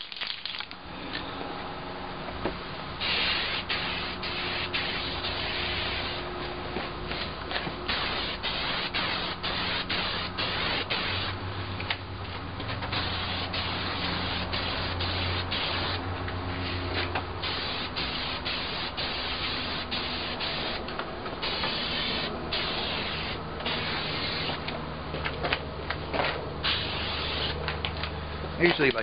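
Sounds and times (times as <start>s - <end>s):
aerosol can spraying: 7.9s - 11.3s, 12.9s - 16.0s, 17.4s - 20.8s, 21.4s - 24.6s, 26.7s - 27.6s.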